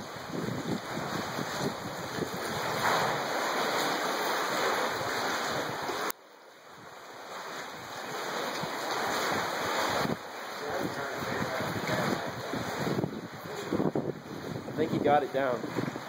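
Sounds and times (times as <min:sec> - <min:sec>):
wind on microphone: 0:00.0 - 0:06.1, 0:07.7 - 0:16.0
waves washing against seawall: 0:00.0 - 0:16.0.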